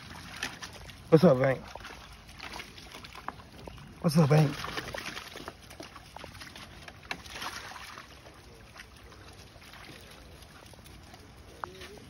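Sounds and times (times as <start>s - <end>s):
water sloshing and splashing: 0.0s - 12.0s.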